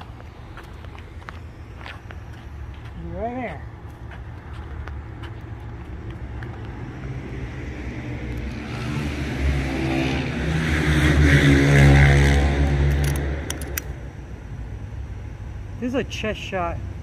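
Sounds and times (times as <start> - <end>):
vehicle driving past: 5.1 - 13.8.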